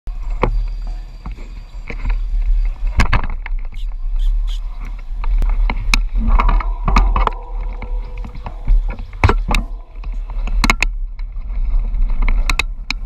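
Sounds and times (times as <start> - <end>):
wind buffeting microphone: 0.2 - 13.0
background voices: 3.6 - 10.8.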